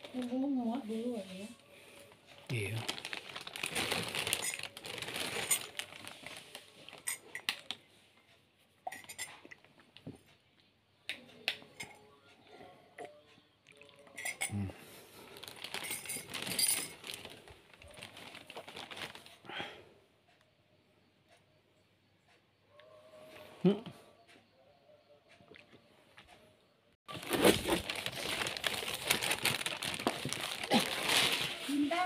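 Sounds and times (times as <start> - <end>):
tableware clinking: 14.1 - 14.6.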